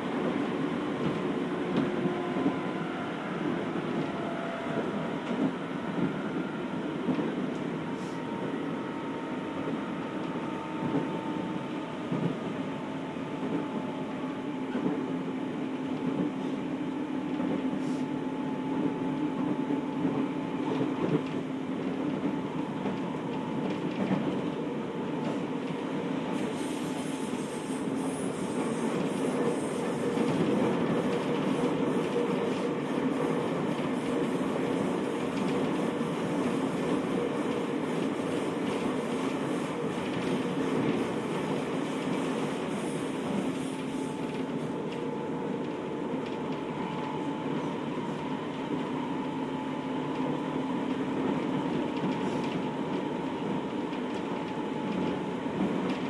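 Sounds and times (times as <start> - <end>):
train rolling noise: 0.0 - 56.0
rail clicks: 25.2 - 47.7.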